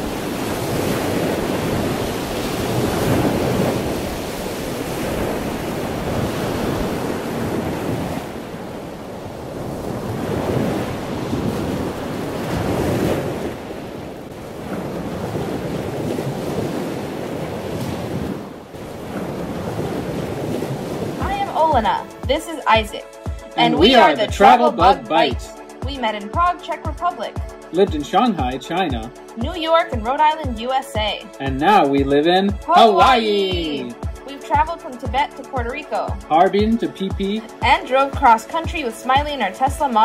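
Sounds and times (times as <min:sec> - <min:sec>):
wind buffeting microphone: 0:00.0 - 0:21.9
ocean surf washing in: 0:00.0 - 0:40.0.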